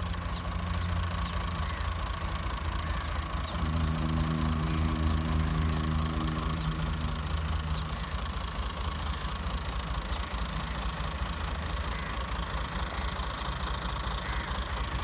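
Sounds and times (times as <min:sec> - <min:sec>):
tractor diesel engine idling: 0:00.0 - 0:15.0.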